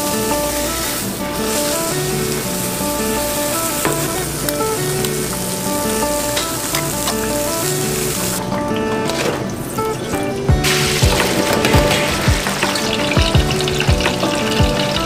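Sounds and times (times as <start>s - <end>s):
eggs sizzling on a griddle: 0.0s - 8.4s
background music: 0.0s - 15.0s.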